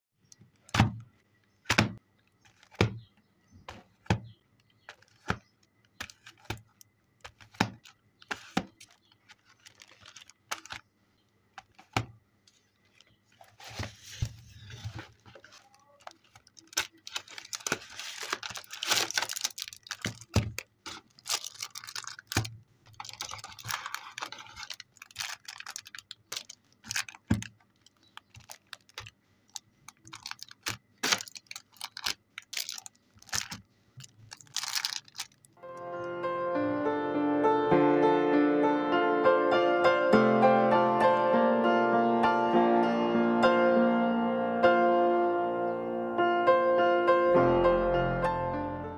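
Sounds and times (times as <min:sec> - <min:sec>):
plastic wrapping crinkling: 0:02.2 - 0:02.8, 0:04.8 - 0:10.9, 0:11.6 - 0:35.6.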